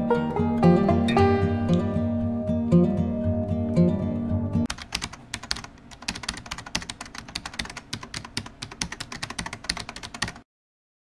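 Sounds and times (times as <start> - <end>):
keyboard typing clicks: 4.7 - 10.4.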